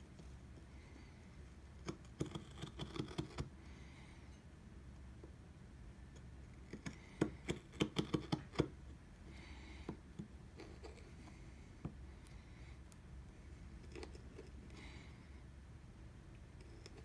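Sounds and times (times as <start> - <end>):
chisel tapping into wood: 6.7 - 8.8
chisel scrape: 10.5 - 11.2.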